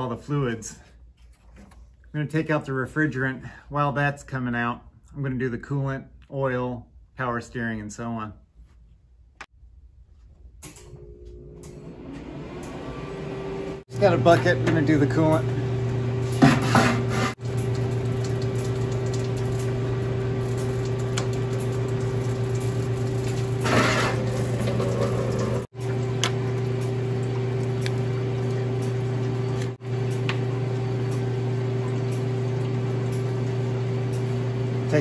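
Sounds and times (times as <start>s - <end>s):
machine humming: 10.6s - 35.0s.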